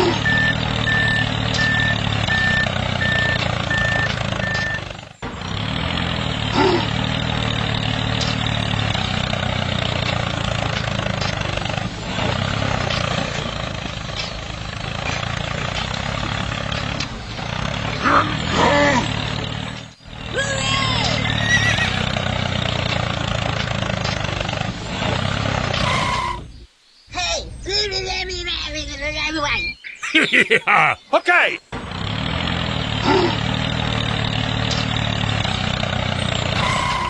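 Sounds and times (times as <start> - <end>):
heavy vehicle engine running: 0.0 - 26.6, 31.6 - 37.0
reversing beeps: 0.2 - 4.9.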